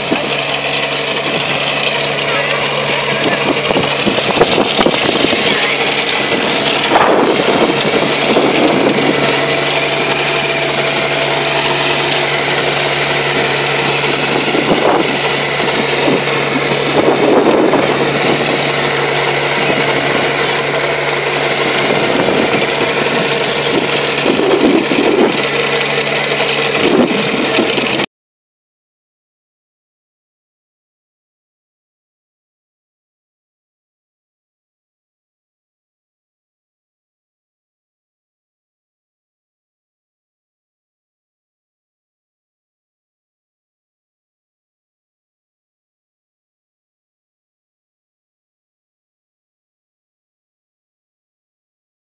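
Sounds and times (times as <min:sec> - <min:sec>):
high whine: 0:00.0 - 0:28.1
rotary tiller churning soil: 0:00.0 - 0:28.1
tractor engine running under load: 0:00.0 - 0:28.1.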